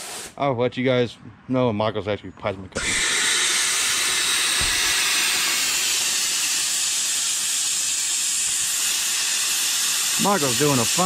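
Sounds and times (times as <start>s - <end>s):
plasma cutter hissing: 2.8s - 11.0s.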